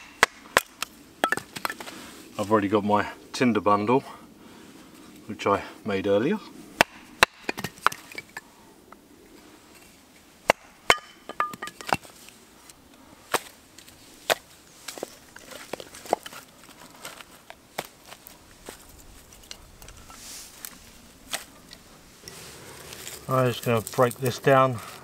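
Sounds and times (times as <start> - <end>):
firewood knocking together: 10.5 - 12.1.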